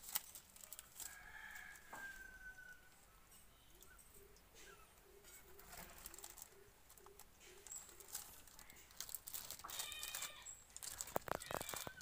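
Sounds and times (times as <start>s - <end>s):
plastic packet crinkling: 0.0s - 1.8s, 5.5s - 12.0s.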